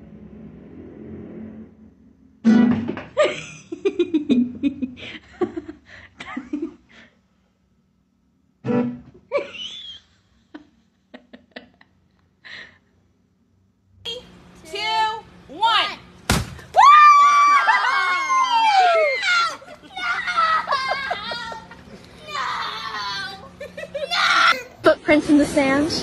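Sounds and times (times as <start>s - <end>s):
person laughing: 3.2s - 7.0s, 19.6s - 22.0s, 23.4s - 24.8s
acoustic guitar strummed: 8.6s - 9.2s.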